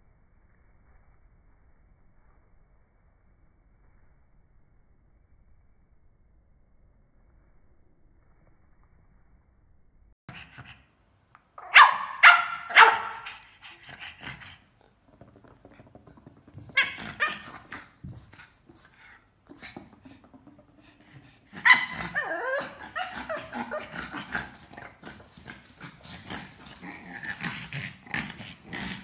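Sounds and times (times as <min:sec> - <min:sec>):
dog barking: 0:11.6 - 0:13.4.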